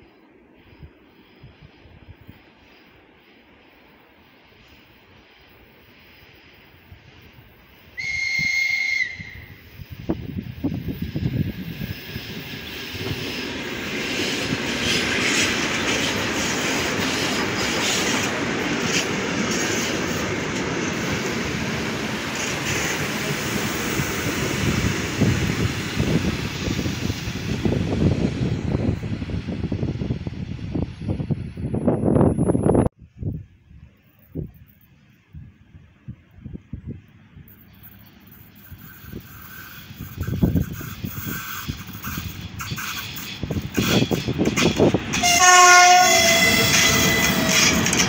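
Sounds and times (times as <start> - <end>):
train wheels rumbling on rail: 0.0 - 33.4, 34.1 - 48.0
train whistle: 7.9 - 9.7, 45.1 - 47.9
wheels clicking over rail joints: 37.6 - 48.0.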